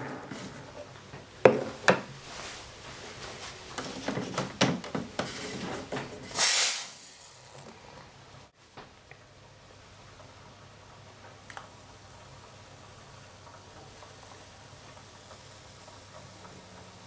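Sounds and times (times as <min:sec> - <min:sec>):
espresso machine hiss: 0:05.2 - 0:07.6.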